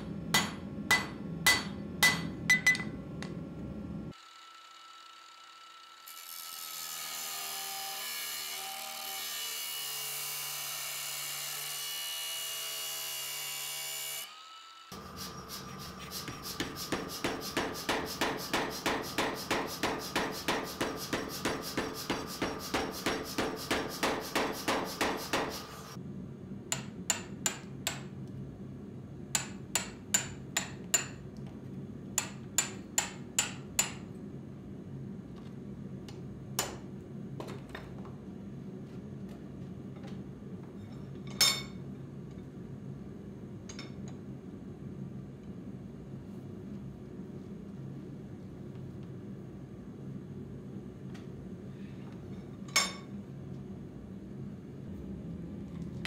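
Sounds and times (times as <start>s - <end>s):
angle grinder cutting steel: 15.0s - 26.0s
power hammer pounding steel: 16.0s - 25.9s.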